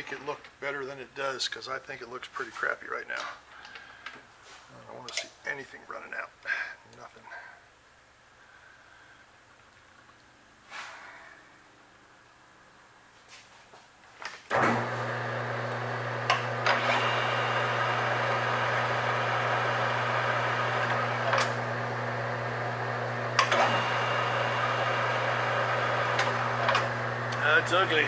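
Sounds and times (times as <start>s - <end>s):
metal lathe motor hum: 14.5s - 28.0s.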